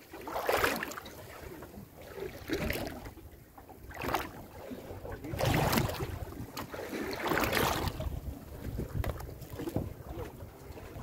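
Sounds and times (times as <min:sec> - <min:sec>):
water washing along hull: 0:00.0 - 0:11.0
wind buffeting microphone: 0:04.7 - 0:11.0.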